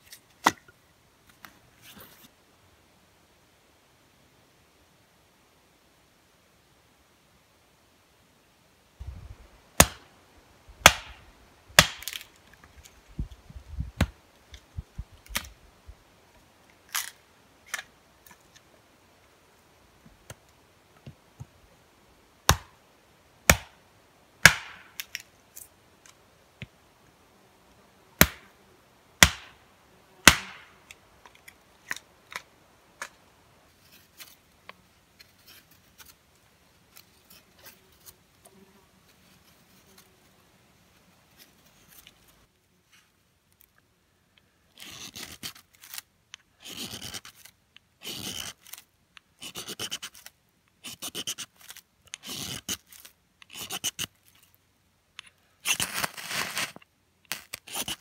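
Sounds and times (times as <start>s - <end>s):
hatchet splitting firewood: 9.8s - 10.0s, 10.8s - 11.2s, 11.8s - 12.3s, 22.5s - 22.8s, 23.5s - 23.8s, 24.4s - 25.2s, 28.2s - 28.5s, 29.2s - 29.6s, 30.2s - 30.7s.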